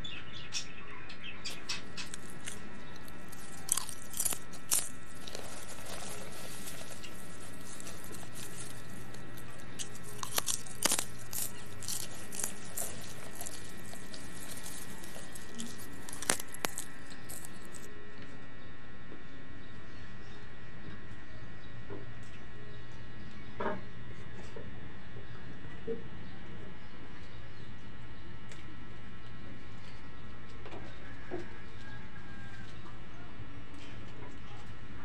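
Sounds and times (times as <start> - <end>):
faint hum: 0.0 - 35.0
person chewing crunchy food: 1.5 - 17.9.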